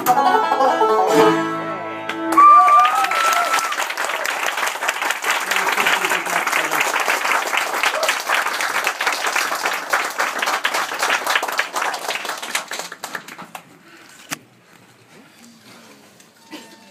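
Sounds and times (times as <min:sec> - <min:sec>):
audience applauding: 0:02.1 - 0:13.8.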